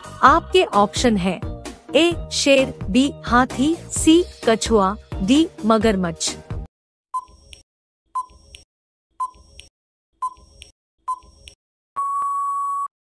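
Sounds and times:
short electronic beeps: 0:07.2 - 0:07.4, 0:08.2 - 0:08.4, 0:09.2 - 0:09.5, 0:10.2 - 0:10.5, 0:11.1 - 0:11.4
long steady beep: 0:12.0 - 0:12.9.

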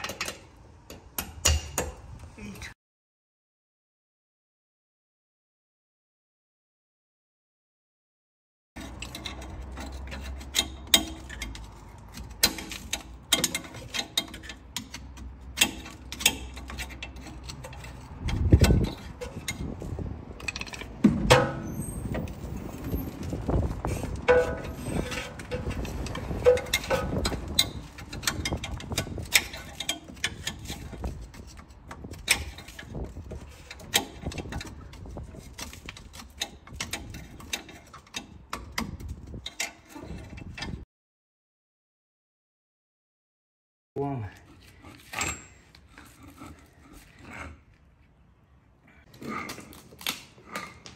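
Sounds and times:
metallic clicks and knocks: 0:00.0 - 0:02.1, 0:08.8 - 0:22.4, 0:23.2 - 0:40.8.

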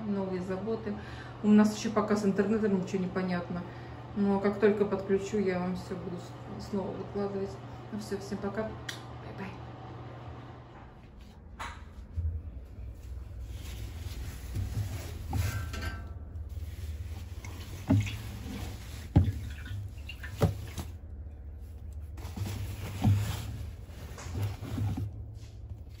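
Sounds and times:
laundry fabric rustling: 0:12.8 - 0:15.8, 0:16.4 - 0:21.0, 0:21.6 - 0:26.0.

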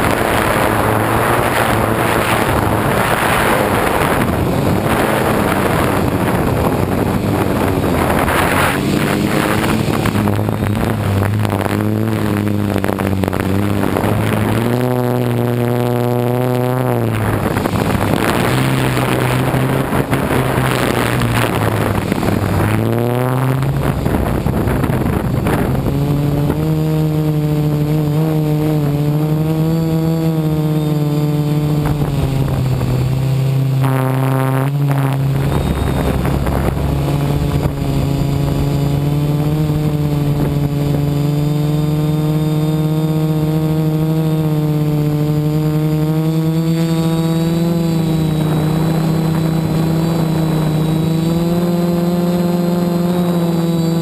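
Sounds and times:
drone motors and propellers buzzing: 0:00.0 - 0:54.0.

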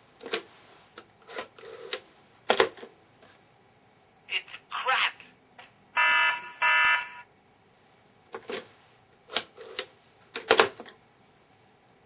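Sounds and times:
buzzing electronic alarm tones: 0:06.0 - 0:07.3.

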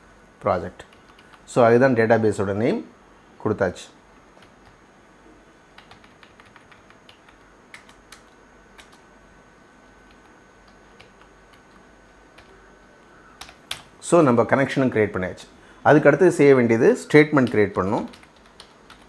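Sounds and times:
computer keyboard keystrokes: 0:00.8 - 0:01.5, 0:04.3 - 0:04.8, 0:05.8 - 0:09.0, 0:10.0 - 0:11.8, 0:13.4 - 0:13.9, 0:17.4 - 0:19.0.

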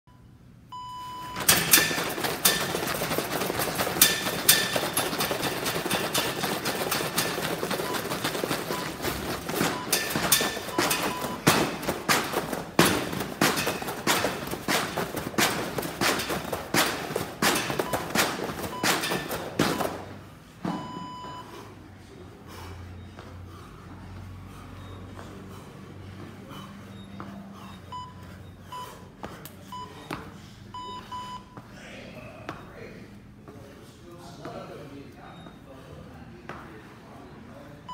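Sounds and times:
battle ropes slapping floor: 0:01.4 - 0:20.2.

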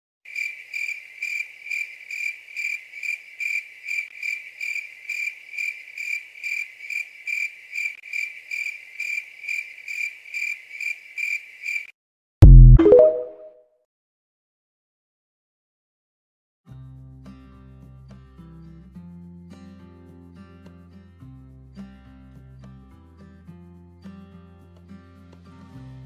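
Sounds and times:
cricket chirping: 0:00.3 - 0:11.9
deep boom with synth tone: 0:12.4 - 0:12.9.

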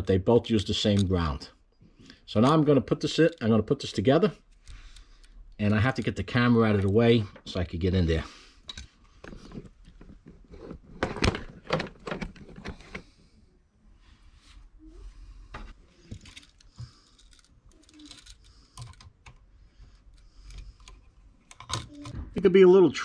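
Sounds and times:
handling clicks and knocks: 0:08.6 - 0:13.1, 0:15.6 - 0:22.4.

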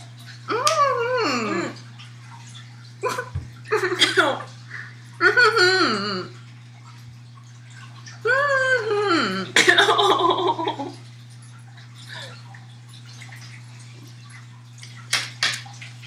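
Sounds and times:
woman whining moan: 0:00.5 - 0:01.8, 0:05.2 - 0:06.3, 0:08.2 - 0:09.6
woman laughing and gagging: 0:03.0 - 0:04.4, 0:08.3 - 0:11.0.

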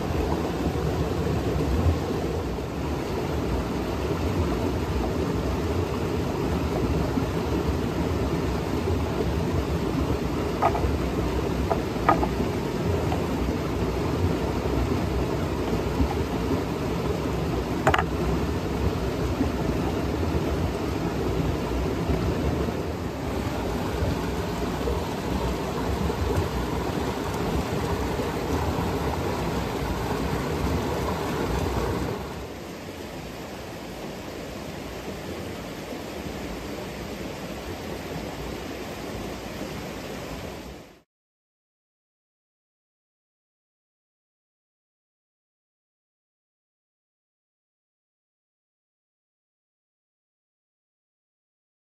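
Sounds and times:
mountain stream rushing: 0:00.0 - 0:41.0.

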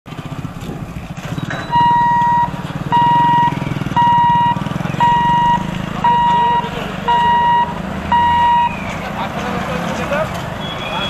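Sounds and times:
engines idling: 0:00.1 - 0:11.0
level crossing warning beeps: 0:01.4 - 0:08.9.

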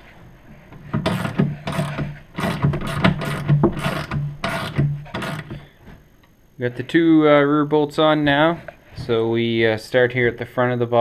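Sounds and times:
socket ratchet clicking: 0:01.1 - 0:05.6.

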